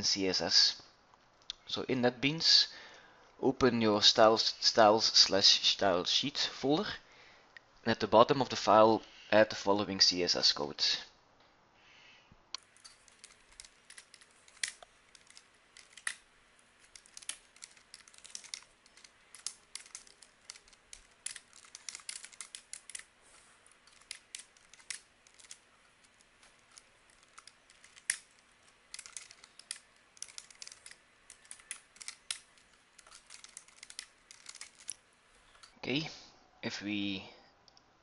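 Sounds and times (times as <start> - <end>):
typing on keyboard: 16.9 - 23.0, 23.8 - 35.0.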